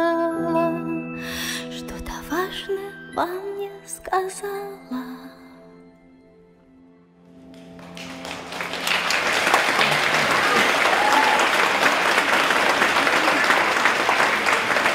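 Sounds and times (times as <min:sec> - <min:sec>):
soft music: 0:00.0 - 0:14.9
audience applauding: 0:07.5 - 0:14.9.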